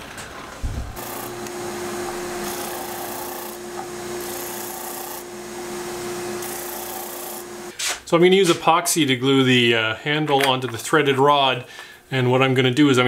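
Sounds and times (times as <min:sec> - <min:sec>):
disc sander motor hum: 0:01.0 - 0:07.7
wood block rasping on sander: 0:01.0 - 0:07.7.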